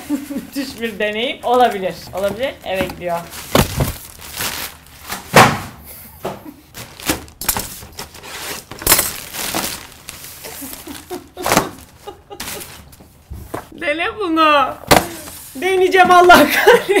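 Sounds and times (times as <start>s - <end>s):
plastic bag tearing and crinkling: 2.1s - 5.4s, 6.7s - 11.9s.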